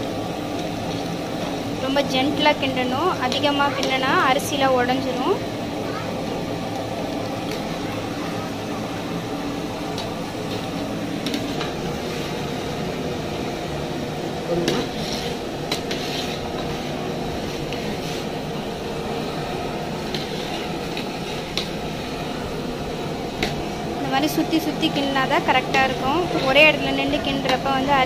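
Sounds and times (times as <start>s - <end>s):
steady hum: 0.0s - 28.0s
ladle scraping and clinking on pot: 14.7s - 16.8s.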